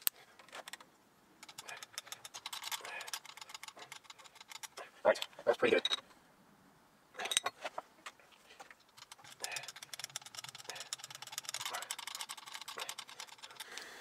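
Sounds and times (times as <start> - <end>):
small rapid clicks and ticks: 0.0 - 5.3, 8.6 - 14.0.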